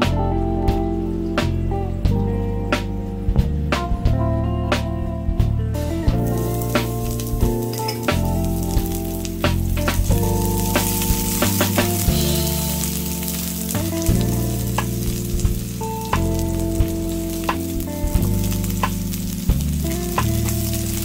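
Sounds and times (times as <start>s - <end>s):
onions sizzling in oil: 6.1s - 21.0s.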